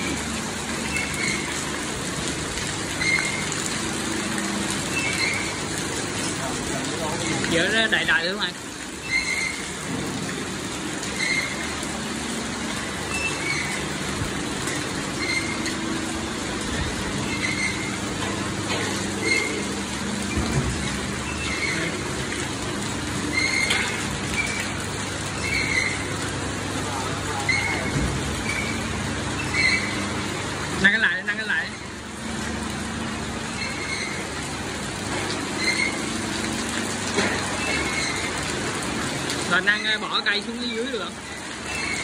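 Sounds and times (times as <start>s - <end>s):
motor and spit humming: 0.0s - 42.0s
short squeak: 9.0s - 9.6s, 15.2s - 15.7s, 17.3s - 17.9s, 19.2s - 19.6s, 23.3s - 24.7s, 27.4s - 30.0s, 35.6s - 36.0s, 41.7s - 42.0s.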